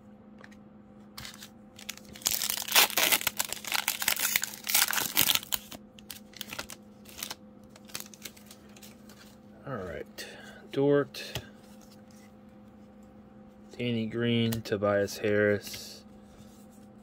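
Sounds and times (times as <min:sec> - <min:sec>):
plastic wrapper tearing and crinkling: 0:01.2 - 0:09.0.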